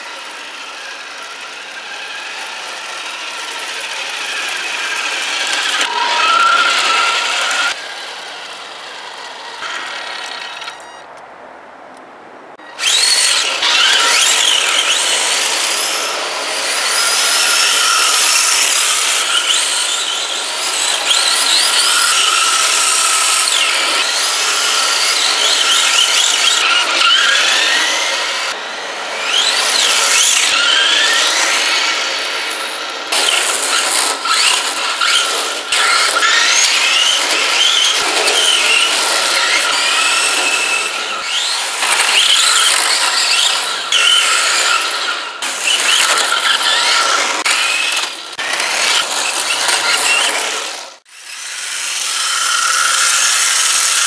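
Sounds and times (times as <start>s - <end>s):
tyres squealing on pavement: 0.0s - 11.2s, 12.6s - 51.1s
electric motor whining: 12.8s - 54.0s.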